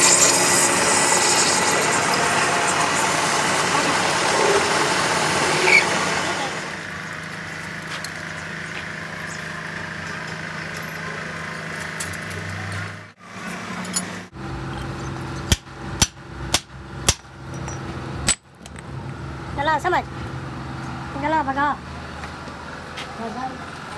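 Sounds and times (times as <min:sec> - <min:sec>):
metal lathe humming: 0:00.0 - 0:06.8
hammer striking steel shaft: 0:15.4 - 0:18.8.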